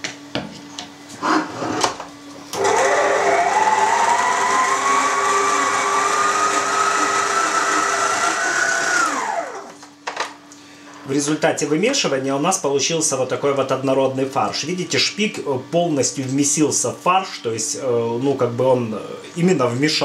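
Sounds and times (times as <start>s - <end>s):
stand mixer motor whine: 2.5s - 9.8s.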